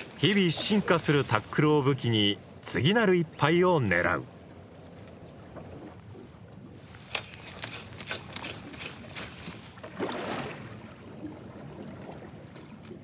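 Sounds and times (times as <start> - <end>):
rush of water: 0.0 - 2.8, 6.8 - 13.0
water slapping boat hull: 0.0 - 2.8, 3.8 - 13.0
sharp splashes: 6.9 - 11.2.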